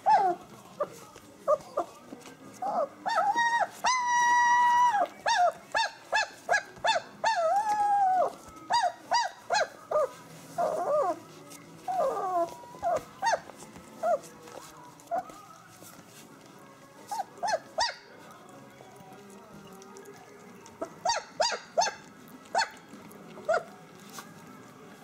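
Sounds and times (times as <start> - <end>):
puppies yelping: 0.0 - 0.4, 2.6 - 14.3, 17.1 - 18.1, 20.8 - 23.7
puppies whining: 0.0 - 25.0.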